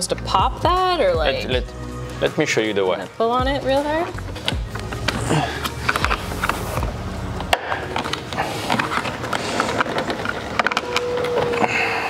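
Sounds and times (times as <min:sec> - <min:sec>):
plastic clips clicking and rattling: 0:07.4 - 0:11.8.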